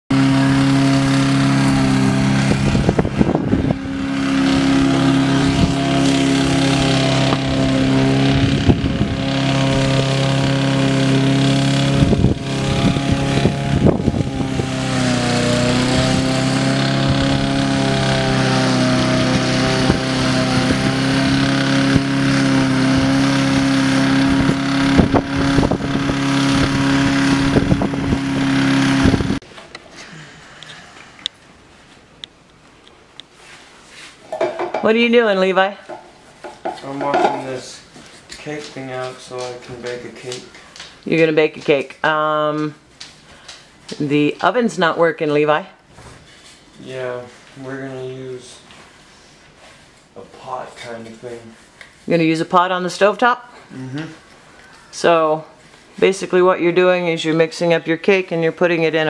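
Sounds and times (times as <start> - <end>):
lawn mower engine running: 0.1 - 31.4, 35.9 - 37.5.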